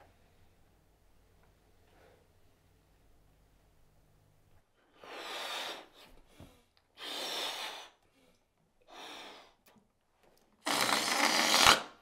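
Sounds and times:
breathy puffs into balloon: 10.6 - 11.8.

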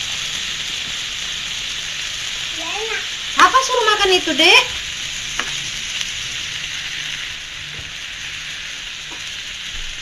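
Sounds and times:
meat sizzling in hot oil: 0.0 - 10.0.

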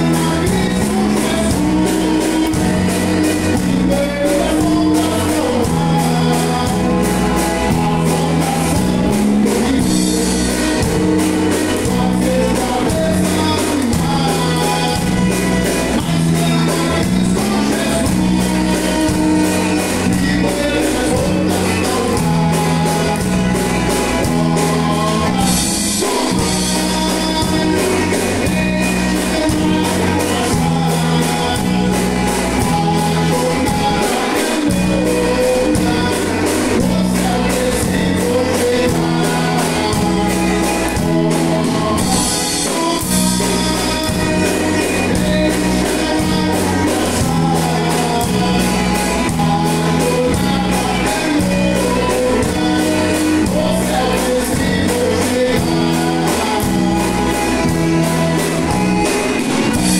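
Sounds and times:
accordion: 0.0 - 59.9
drum kit: 0.0 - 59.9
electric bass line: 0.0 - 59.9
electric guitar: 0.0 - 59.9
man singing: 0.0 - 59.9.

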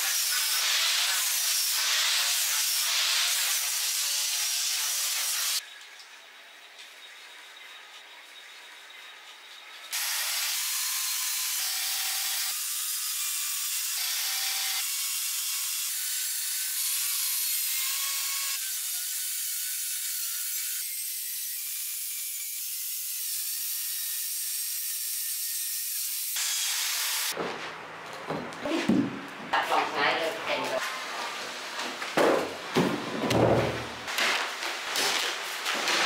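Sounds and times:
electric chainsaw cutting wood: 0.0 - 5.6, 9.9 - 27.4.

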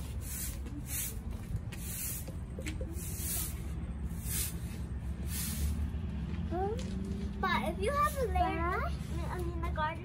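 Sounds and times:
broom sweeping concrete: 0.0 - 6.0.

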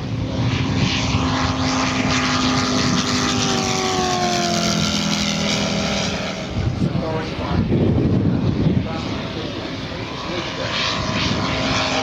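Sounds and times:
model airplane engine flying past: 0.0 - 12.0.

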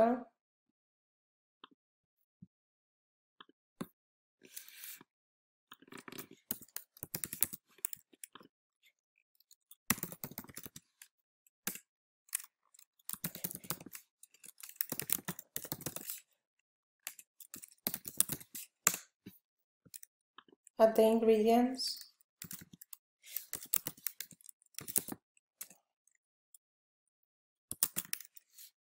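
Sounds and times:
computer keyboard typing: 5.8 - 8.2, 9.8 - 10.9, 11.7 - 16.2, 17.1 - 19.0, 22.4 - 25.7, 27.7 - 28.4.

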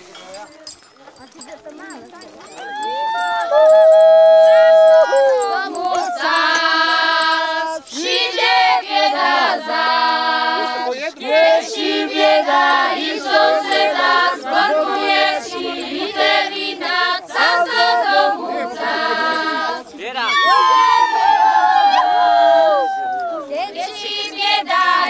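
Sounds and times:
group singing in chorus: 5.3 - 19.9, 23.8 - 25.0.

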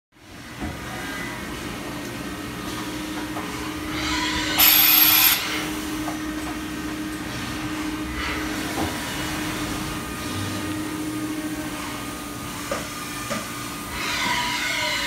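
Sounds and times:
machine humming: 4.3 - 6.0.

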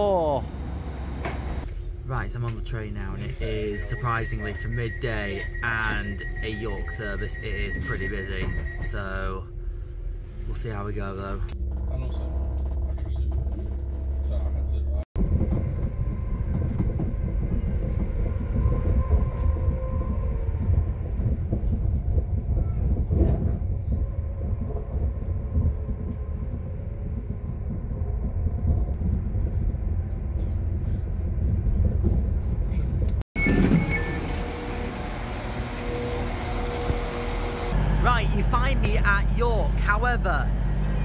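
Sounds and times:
station platform hum: 0.0 - 10.4, 31.0 - 41.0
held tone: 3.2 - 9.1
train cabin rumble: 10.6 - 41.0.

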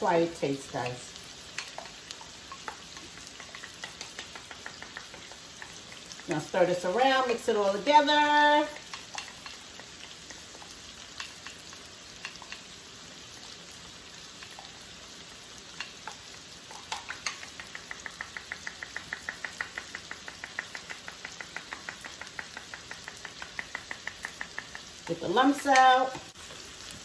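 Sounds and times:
faint steady hiss: 0.0 - 27.0
spatula ticking against glass bowl: 0.8 - 6.3, 8.6 - 12.7, 15.8 - 25.2.

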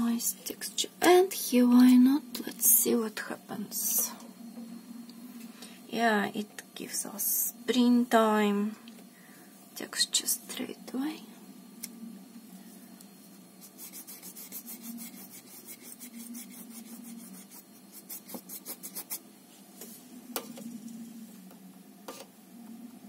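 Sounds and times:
low steady hum: 0.0 - 23.0
paintbrush scratching on paper: 13.2 - 19.2.

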